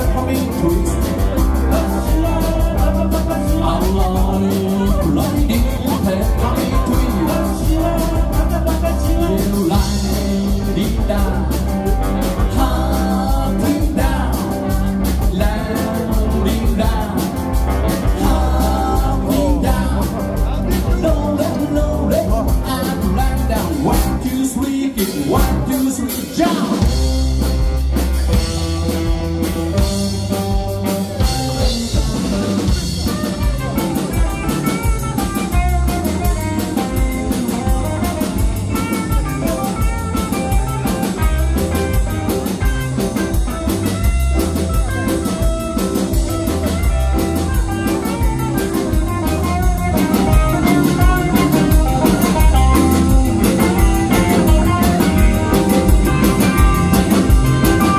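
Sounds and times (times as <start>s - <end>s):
man singing: 0.0s - 27.2s, 30.4s - 57.9s
rock band playing: 0.0s - 57.9s.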